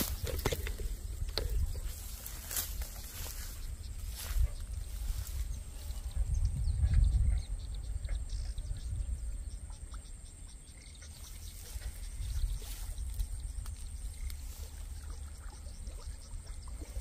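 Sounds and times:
small chirps and ticks: 0:00.0 - 0:17.0.

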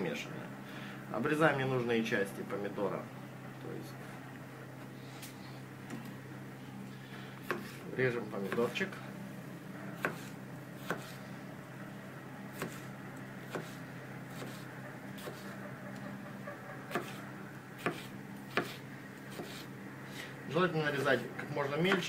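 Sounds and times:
steady low hum: 0:00.0 - 0:22.0
knife chopping on wooden board: 0:07.4 - 0:07.8, 0:08.5 - 0:08.8, 0:10.0 - 0:11.2, 0:12.5 - 0:14.6, 0:15.2 - 0:15.5, 0:16.9 - 0:17.2, 0:17.8 - 0:19.7.

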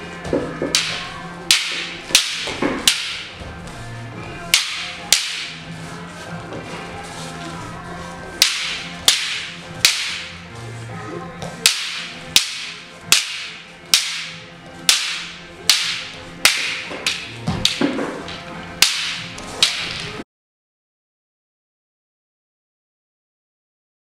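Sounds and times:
wooden staffs clacking: 0:00.2 - 0:03.6, 0:04.4 - 0:05.7, 0:08.2 - 0:10.4, 0:11.4 - 0:20.2.

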